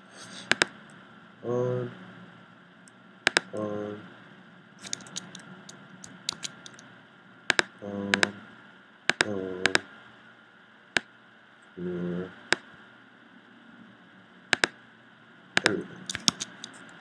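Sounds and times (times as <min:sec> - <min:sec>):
computer mouse clicks: 0:00.4 - 0:00.7, 0:03.3 - 0:03.6, 0:04.8 - 0:06.8, 0:07.5 - 0:08.3, 0:14.5 - 0:14.8, 0:15.6 - 0:17.0.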